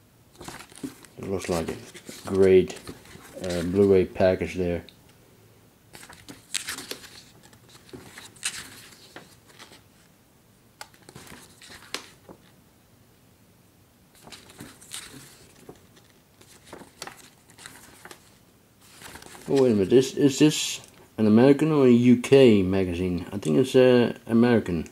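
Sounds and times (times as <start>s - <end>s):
magazine pages rustling: 0.3s - 4.6s, 5.9s - 10.1s, 10.8s - 12.6s, 14.2s - 20.2s.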